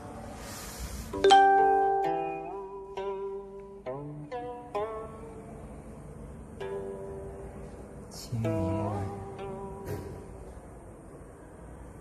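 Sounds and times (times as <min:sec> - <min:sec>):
plucked zither notes: 0:01.2 - 0:10.5.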